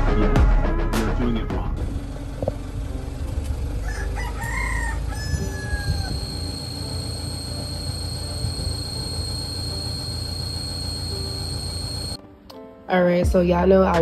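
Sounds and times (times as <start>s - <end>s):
rooster crowing: 3.7s - 7.5s.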